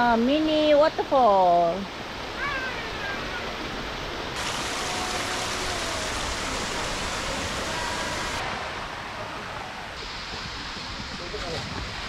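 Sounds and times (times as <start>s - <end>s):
waterfall rushing over rocks: 1.8s - 12.0s.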